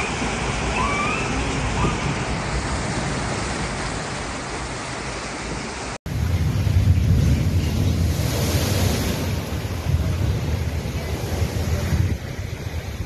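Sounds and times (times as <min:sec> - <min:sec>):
floodwater rushing: 0:00.0 - 0:13.0.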